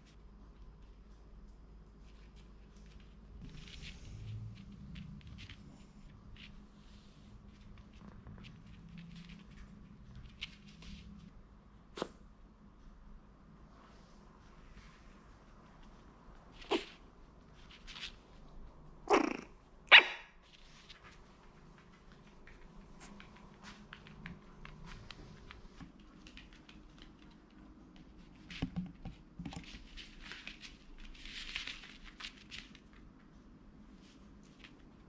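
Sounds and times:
puppies scuffling: 0.0s - 11.3s, 20.4s - 35.0s.

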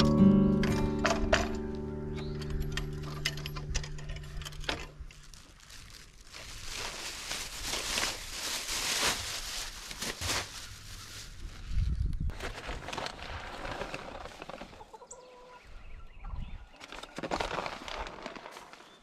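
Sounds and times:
background music: 0.0s - 4.9s.

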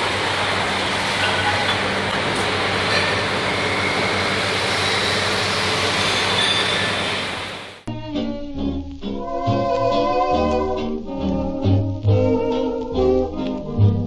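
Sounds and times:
faint machine whines: 2.8s - 7.7s.

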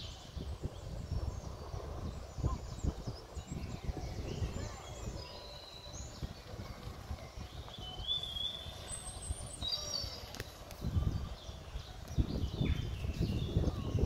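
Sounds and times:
birds chirping and whistling: 0.0s - 14.0s
wind buffeting microphone: 0.0s - 14.0s.

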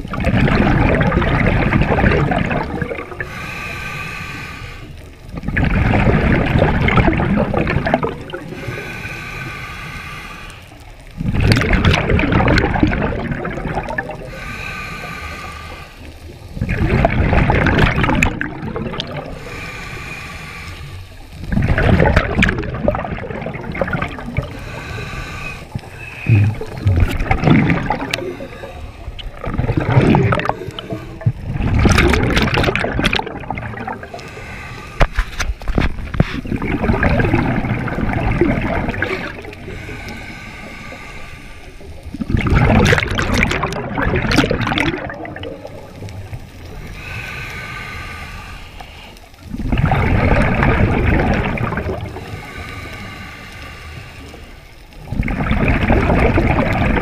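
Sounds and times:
bubbling exhale: 0.0s - 57.0s
regulator hissing inhale: 3.2s - 5.2s, 8.4s - 11.1s, 14.2s - 16.6s, 19.2s - 21.4s, 24.2s - 26.8s, 27.8s - 31.4s, 34.0s - 35.6s, 38.9s - 42.2s, 45.6s - 49.5s, 52.0s - 55.0s.

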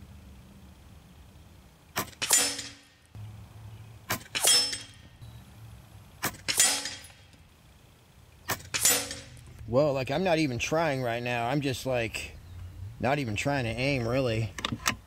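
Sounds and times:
air rifle shots: 2.0s - 2.9s, 4.1s - 5.0s, 6.2s - 7.2s, 8.5s - 9.4s.

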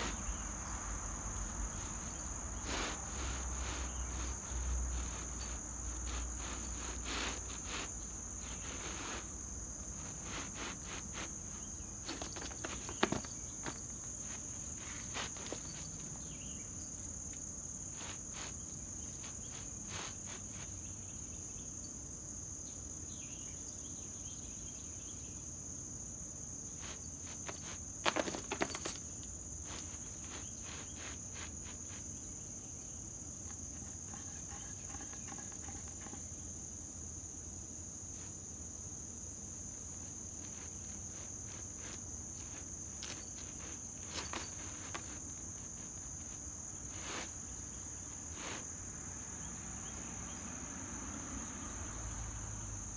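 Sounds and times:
cat scratching a rug: 0.0s - 21.0s, 26.7s - 36.5s, 39.6s - 48.8s
insect chorus droning: 0.0s - 52.9s.

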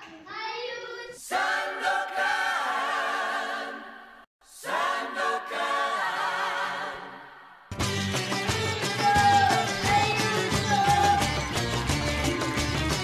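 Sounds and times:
choir singing held chords: 1.2s - 11.7s
music with a beat: 7.7s - 13.0s.

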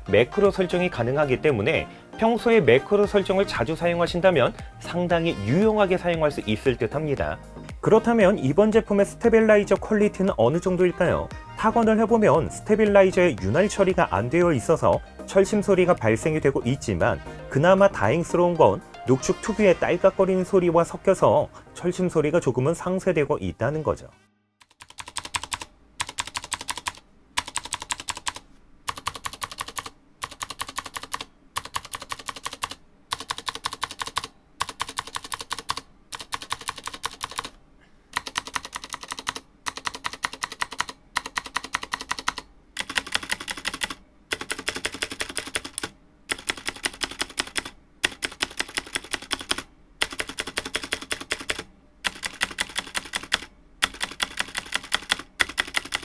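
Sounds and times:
clicky mechanical keyboard typing: 24.6s - 37.5s, 38.1s - 56.0s.

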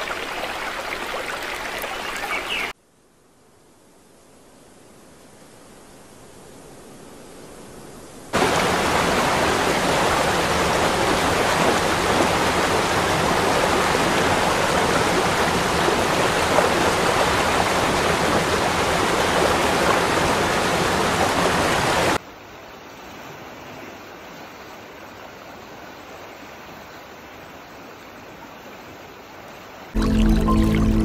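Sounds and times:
waterfall rushing: 8.4s - 22.2s.

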